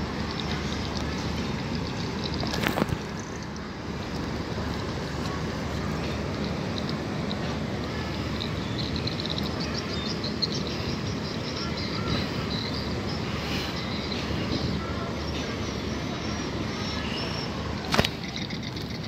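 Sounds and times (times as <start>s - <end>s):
low rumble of outdoor noise: 0.0s - 19.0s
small birds chirping: 0.0s - 19.0s.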